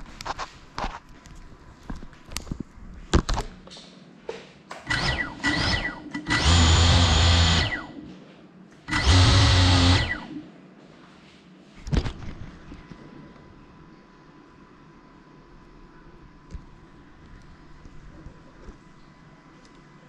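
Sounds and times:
drone motors whirring: 0:04.9 - 0:08.0, 0:08.9 - 0:10.4.

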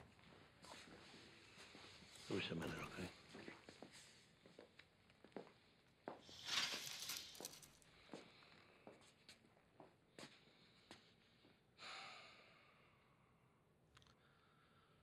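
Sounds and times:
faint clicks and shuffles: 0:00.0 - 0:11.2
short breath: 0:11.8 - 0:13.2.

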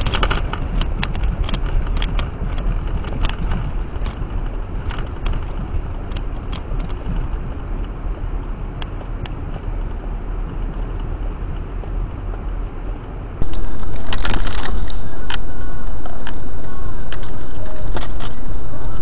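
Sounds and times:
scattered clicks: 0:00.0 - 0:04.2, 0:04.8 - 0:07.0, 0:13.4 - 0:19.0
car engine and tyres rumbling: 0:00.0 - 0:19.0
loud steady rushing noise: 0:13.2 - 0:19.0.

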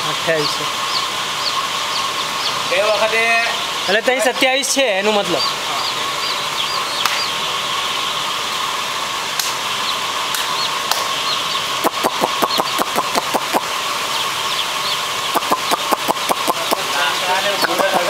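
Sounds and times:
chicks peeping: 0:00.0 - 0:18.0
heater burner and blower running: 0:00.0 - 0:18.0
sharp clicks: 0:11.8 - 0:13.7, 0:15.4 - 0:16.8.

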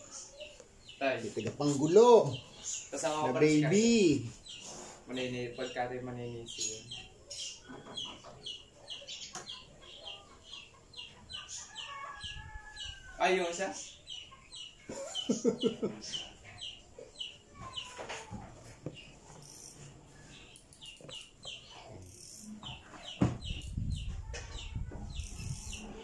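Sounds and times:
knock: 0:23.2 - 0:23.4.

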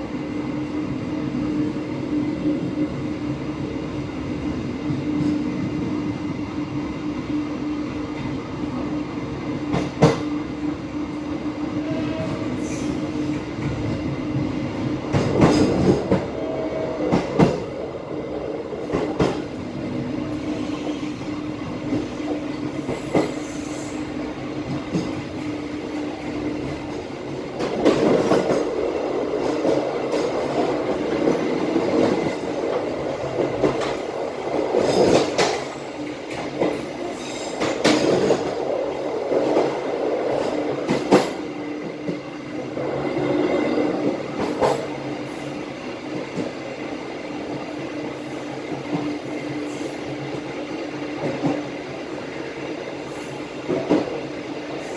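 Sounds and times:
train rolling rumble: 0:00.0 - 0:54.9.

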